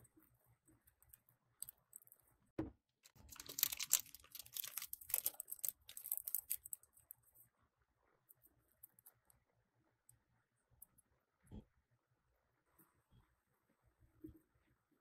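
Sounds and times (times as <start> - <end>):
soft thump: 2.6 - 2.8
plastic piping bag crinkling: 3.1 - 7.2.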